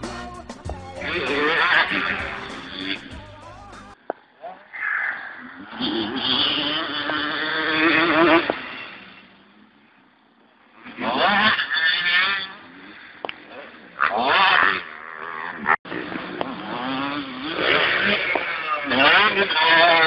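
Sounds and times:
dirt bike engines revving: 0.0 - 20.0.

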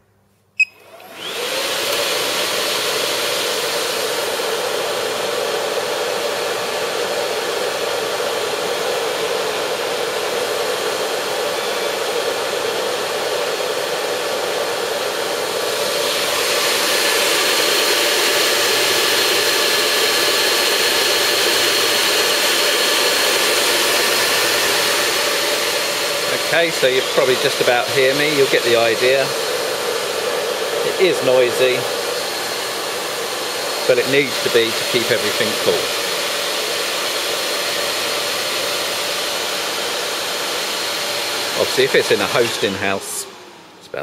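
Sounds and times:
server fans rushing with whine: 1.0 - 44.0.

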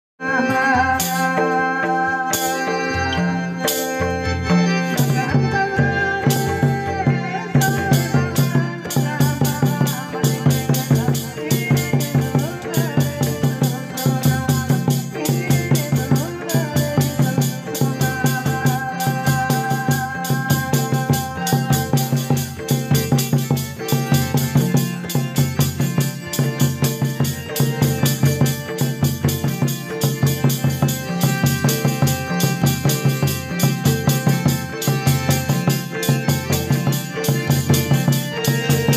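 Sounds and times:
hymn singing: 0.2 - 25.6
fast drum beat: 4.9 - 38.9.

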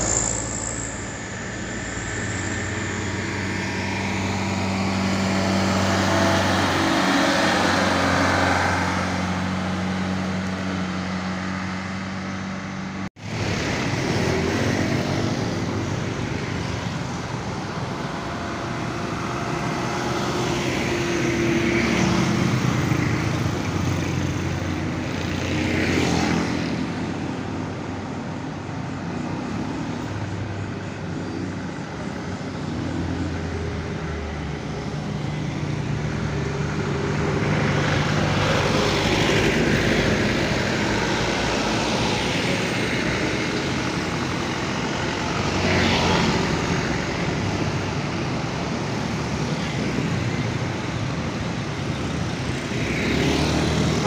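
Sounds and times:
cars and motorcycles passing: 0.0 - 54.0
truck diesel engine droning: 0.0 - 54.0.

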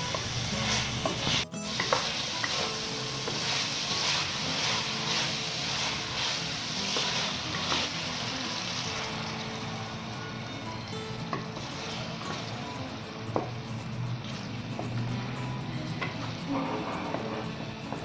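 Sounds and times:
wooden spatula scraping: 0.0 - 9.1
meat and potatoes sizzling in a pan: 0.0 - 18.0.

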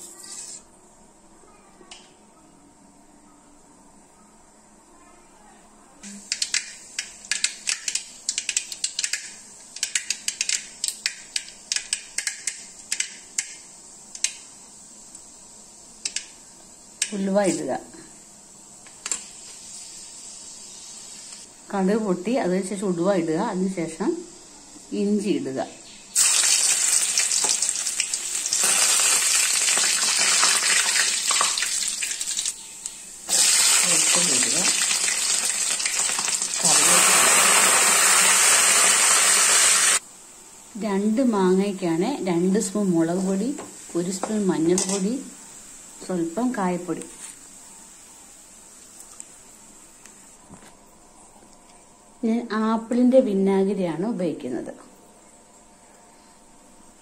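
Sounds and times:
hot oil sizzling in a wok: 6.0 - 50.3
mustard seeds popping in oil: 6.1 - 15.3, 26.1 - 37.6.

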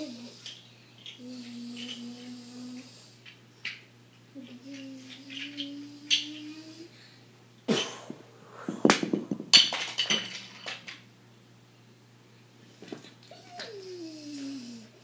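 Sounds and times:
person making raspy hissing noises: 1.2 - 3.2, 14.1 - 15.0.

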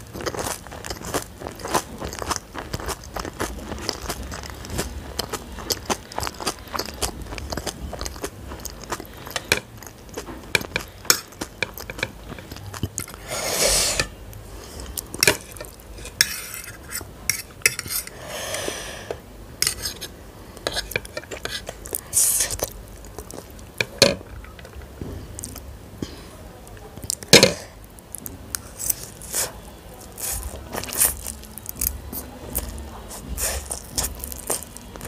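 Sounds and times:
chewing: 0.0 - 13.3, 19.6 - 23.9, 27.9 - 35.0
fork scraping ceramic plate: 15.2 - 22.6.

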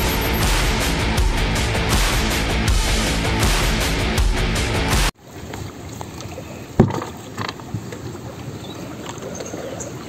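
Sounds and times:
rock music with driving beat: 0.0 - 5.1.

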